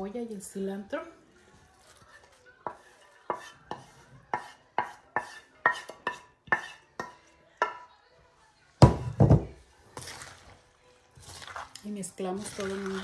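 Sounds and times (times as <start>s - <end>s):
wooden spoon knocking on dish: 8.8s - 9.6s.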